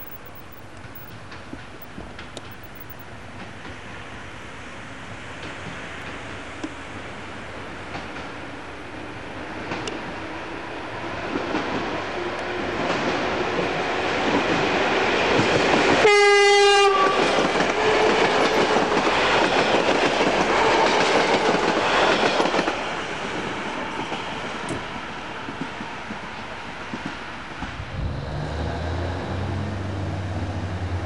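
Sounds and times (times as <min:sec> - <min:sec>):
electric train passing: 0:00.0 - 0:31.0
short train horn blast: 0:16.0 - 0:17.2.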